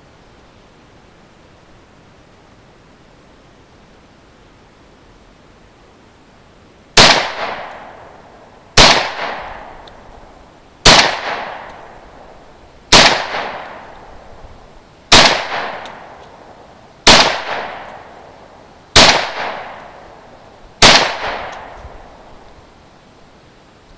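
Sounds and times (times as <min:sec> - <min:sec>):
pistol shots with echo: 0:07.0 - 0:08.1, 0:08.8 - 0:09.8, 0:10.8 - 0:12.0, 0:12.9 - 0:14.1, 0:15.1 - 0:16.2, 0:17.1 - 0:18.3, 0:19.0 - 0:20.1, 0:20.8 - 0:22.1.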